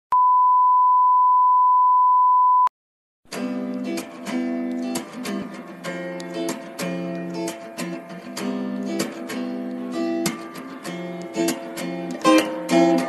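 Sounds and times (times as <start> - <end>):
strummed guitar music: 3.3 - 13.0.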